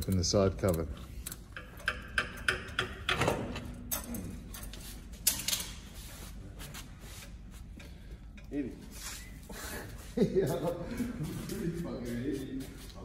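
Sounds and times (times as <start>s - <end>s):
tools clicking and knocking on metal: 0.0s - 5.8s.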